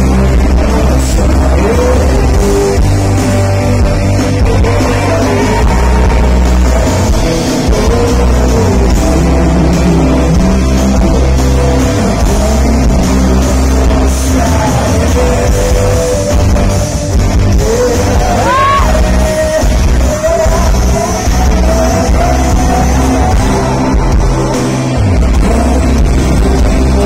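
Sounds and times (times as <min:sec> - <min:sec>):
electric guitars playing: 0:00.0 - 0:27.0
man singing: 0:00.0 - 0:27.0.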